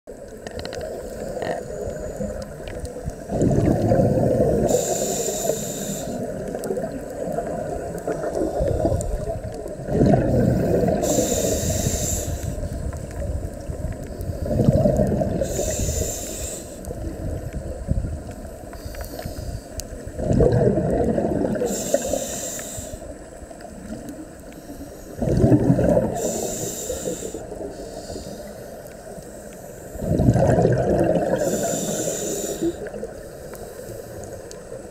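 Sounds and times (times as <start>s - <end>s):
exhaled bubbles rumbling: 0.1s - 5.4s, 6.0s - 18.7s, 19.4s - 22.3s, 23.1s - 27.8s, 29.9s - 33.2s
regulator air hiss: 4.3s - 6.5s, 10.4s - 12.8s, 15.4s - 17.2s, 18.4s - 20.0s, 21.6s - 23.3s, 24.4s - 25.2s, 26.1s - 30.0s, 31.4s - 34.8s.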